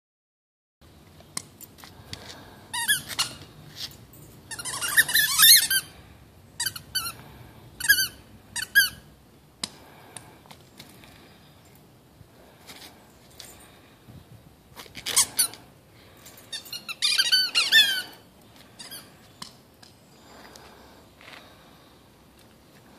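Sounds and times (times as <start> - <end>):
squeaky toy ball squeaking: 2.8 - 3.5, 4.5 - 5.9, 6.6 - 7.2, 7.8 - 9.1, 16.5 - 18.2, 18.8 - 19.1.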